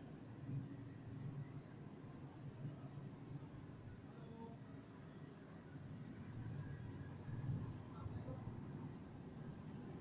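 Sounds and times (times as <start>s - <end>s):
faint low outdoor rumble: 0.0s - 10.0s.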